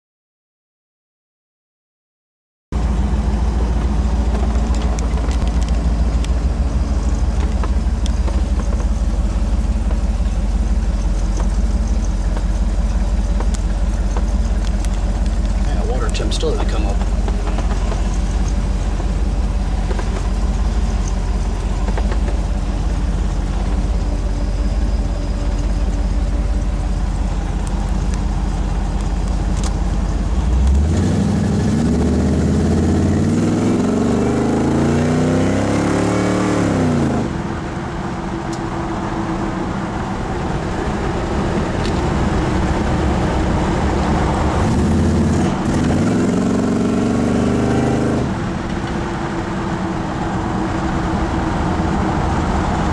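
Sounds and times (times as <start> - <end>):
truck engine idling and revving: 2.8 - 52.9.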